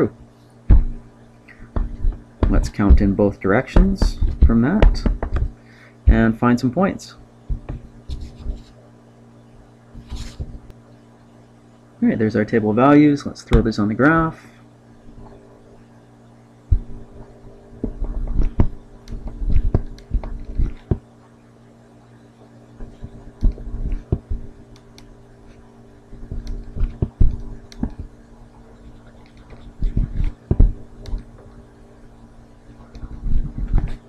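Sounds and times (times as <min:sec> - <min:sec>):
low electrical hum: 0:00.0 - 0:34.0
stylus tapping on a tablet: 0:03.8 - 0:05.5.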